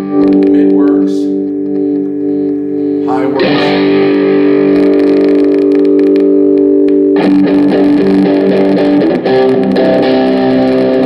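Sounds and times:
electric guitar chords and notes: 0.0 - 11.0.

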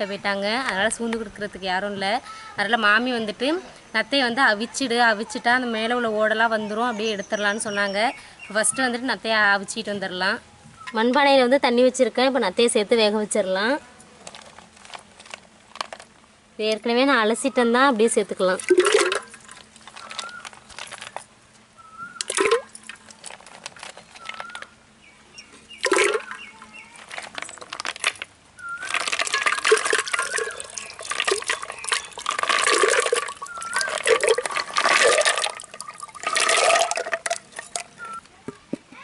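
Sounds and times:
water splashing: 18.5 - 21.0, 22.1 - 23.1, 25.7 - 38.0
water pouring: 18.6 - 21.2, 22.2 - 24.6, 25.8 - 38.0.

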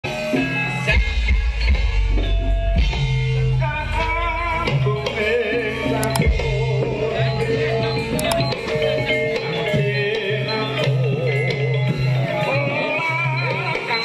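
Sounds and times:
gamelan music: 0.1 - 14.0.

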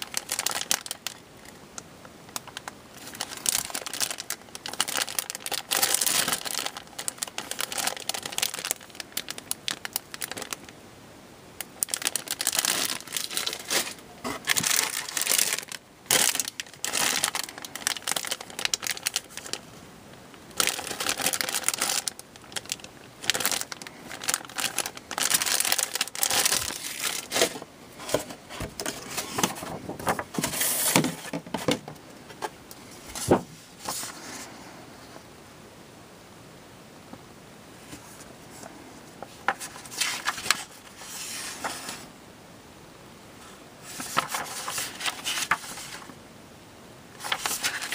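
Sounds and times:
plastic bags crinkling: 0.0 - 1.6, 2.3 - 10.8, 11.6 - 32.5, 39.2 - 42.0, 43.9 - 46.2, 47.2 - 47.9.

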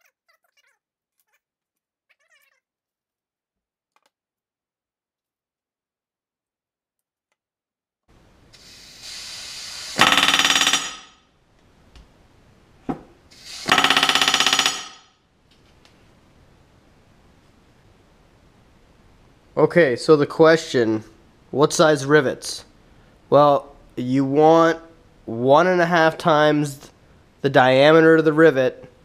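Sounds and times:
air hiss: 8.5 - 10.3, 13.3 - 13.9
rivet gun hammering: 10.0 - 11.1, 13.7 - 15.0.

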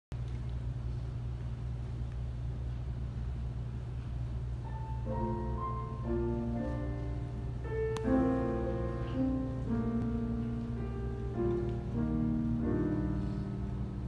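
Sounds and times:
steady low hum: 0.1 - 14.0
slow instrumental melody: 4.7 - 14.0.

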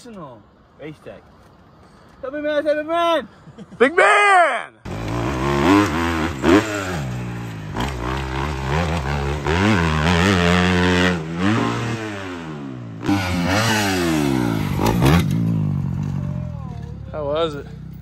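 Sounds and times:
dirt bike engine revving: 4.9 - 16.4.

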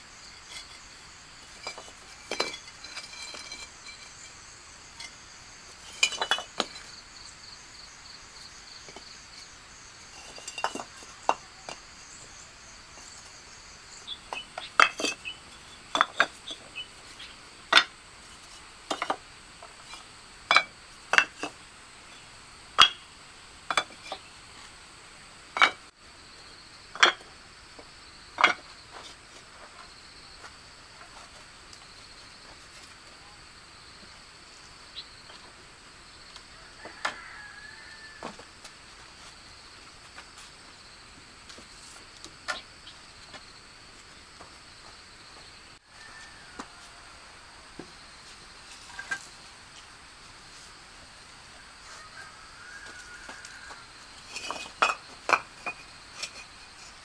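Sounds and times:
sharp clinks and knocks: 0.4 - 7.0, 10.1 - 11.8.

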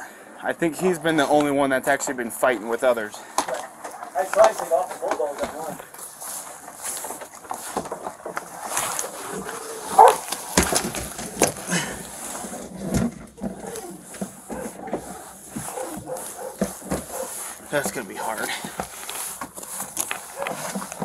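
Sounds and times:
dog making sharp calls: 9.3 - 10.3, 15.6 - 17.6.

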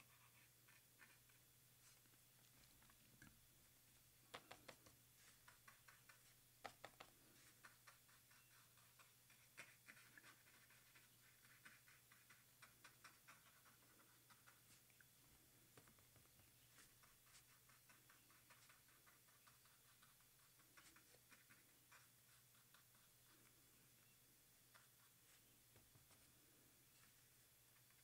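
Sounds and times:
brush pen scratching on paper: 0.0 - 2.1, 4.3 - 14.9, 15.8 - 23.6
low electrical hum: 0.0 - 28.0.

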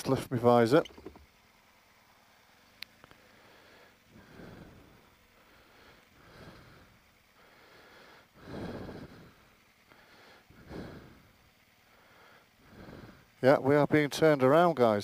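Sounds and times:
person breathing inside helmet: 3.0 - 13.4.

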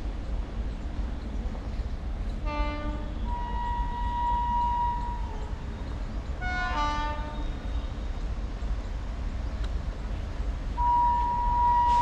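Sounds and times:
train low rumble: 0.0 - 12.0
locomotive air horn: 2.4 - 5.4, 6.4 - 7.5, 10.8 - 12.0.

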